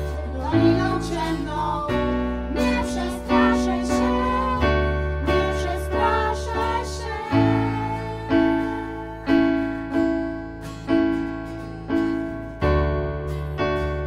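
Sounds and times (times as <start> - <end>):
people singing worship song: 0.0 - 10.1
acoustic guitar: 0.0 - 14.0
bass: 0.0 - 14.0
keyboard chords: 0.0 - 14.0.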